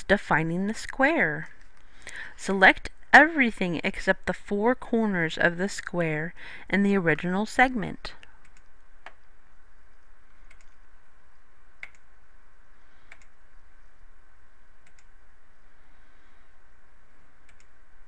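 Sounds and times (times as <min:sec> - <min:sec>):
faint background hum: 0:00.0 - 0:18.0
computer mouse clicking: 0:08.2 - 0:09.3, 0:09.9 - 0:10.8, 0:11.8 - 0:12.0, 0:13.1 - 0:13.4, 0:14.8 - 0:15.1, 0:17.4 - 0:17.8.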